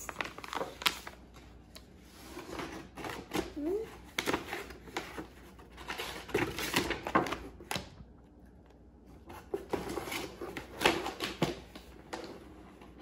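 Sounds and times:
tissue paper rustling: 0:00.0 - 0:07.0.

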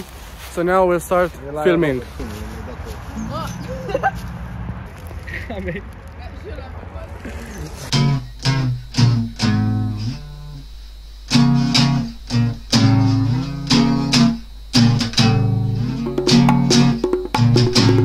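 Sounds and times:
acoustic guitars strumming chords: 0:07.9 - 0:10.6, 0:11.3 - 0:18.0.

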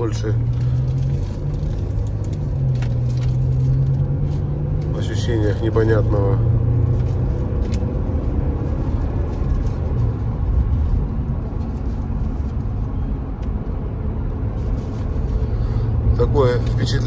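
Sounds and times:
car engine running: 0:00.0 - 0:17.0
road and tyre rumble: 0:00.0 - 0:17.0.

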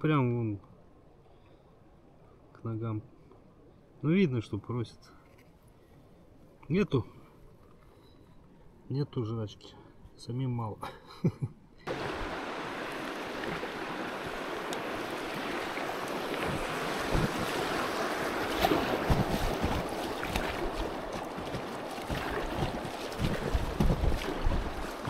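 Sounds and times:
river water rushing: 0:11.9 - 0:25.0
wind buffeting microphone: 0:11.9 - 0:25.0.

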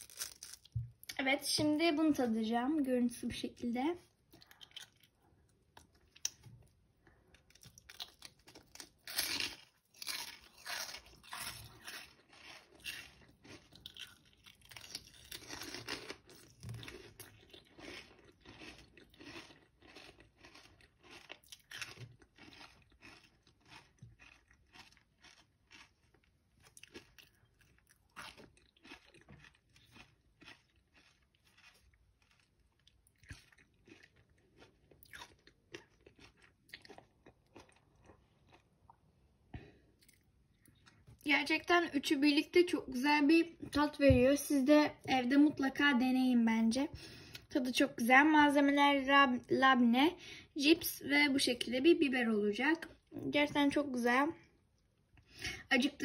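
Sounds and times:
crunching and chewing pepper: 0:00.0 - 0:01.2, 0:04.1 - 0:41.2.

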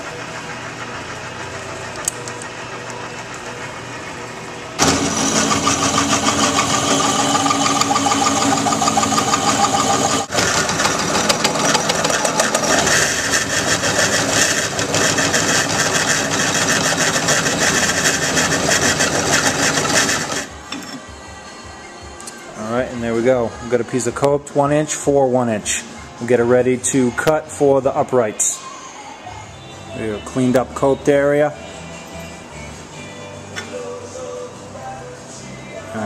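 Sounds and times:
drill motor running: 0:04.8 - 0:20.5
hole saw grinding tubing: 0:04.8 - 0:20.5.

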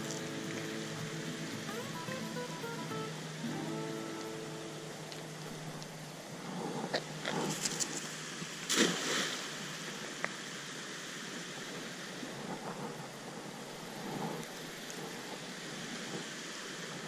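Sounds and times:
water rushing: 0:00.0 - 0:12.4
net splashing into water: 0:08.6 - 0:09.6.

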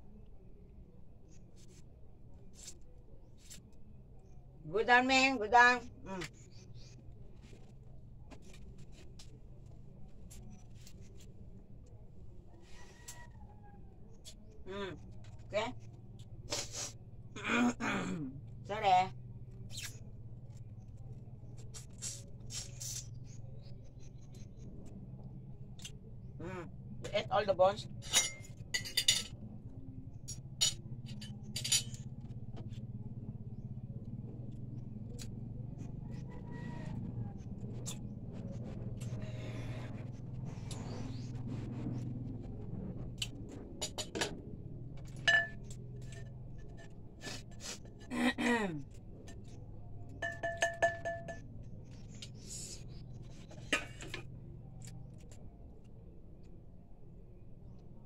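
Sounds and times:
steady low hum: 0:00.0 - 0:58.0
pot clinking: 0:45.2 - 0:45.7, 0:50.2 - 0:51.5.

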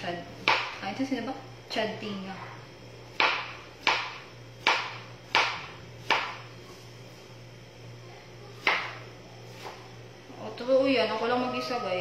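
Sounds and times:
knife chopping on cutting board: 0:00.4 - 0:00.8, 0:03.1 - 0:06.5, 0:08.6 - 0:09.8.

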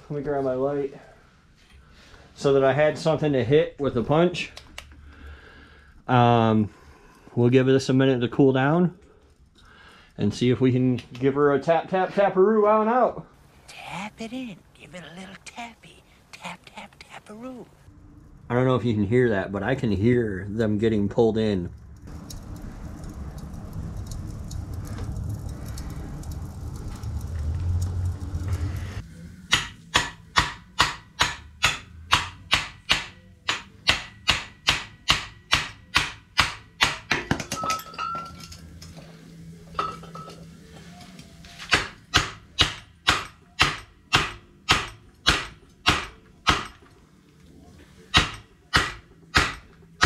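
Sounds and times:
low rumble: 0:17.7 - 0:30.3
hammer striking a punch: 0:29.5 - 0:37.6, 0:41.7 - 0:46.8, 0:48.1 - 0:49.7.

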